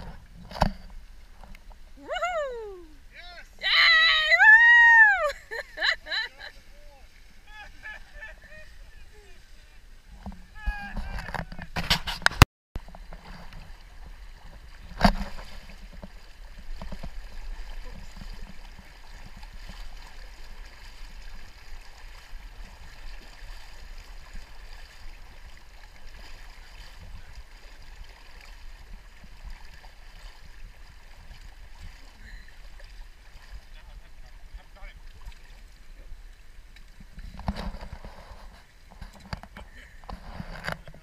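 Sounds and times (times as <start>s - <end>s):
river water rushing: 12.8s - 36.8s.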